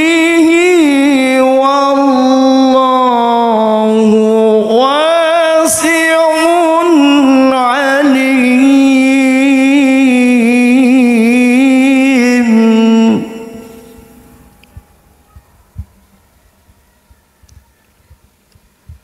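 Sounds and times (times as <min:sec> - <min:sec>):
man reciting melodically: 0:00.0 - 0:15.9.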